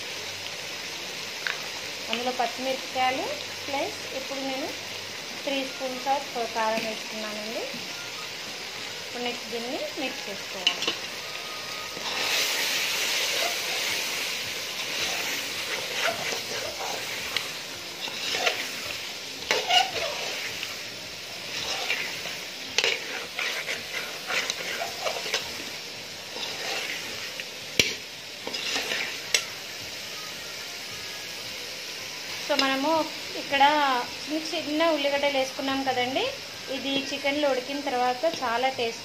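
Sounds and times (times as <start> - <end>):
chicken sizzling: 0.0 - 39.0
metal spoon scraping a pot: 14.8 - 20.7, 21.5 - 25.6, 26.3 - 27.2, 27.8 - 29.4.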